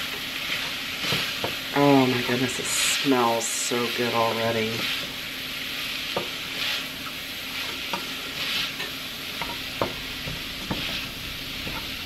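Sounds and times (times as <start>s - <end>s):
meat sizzling in a pot: 0.0s - 12.0s
wooden spatula scraping pot: 6.1s - 12.0s.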